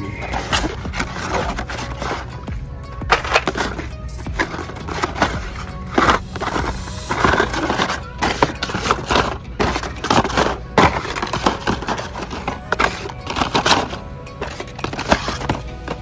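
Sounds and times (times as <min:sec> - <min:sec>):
plastic blister packs clacking: 0:00.0 - 0:16.0.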